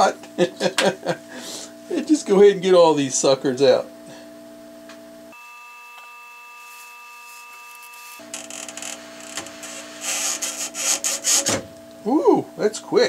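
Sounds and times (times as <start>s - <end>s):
scraping and rubbing on circuit board: 6.8s - 11.6s.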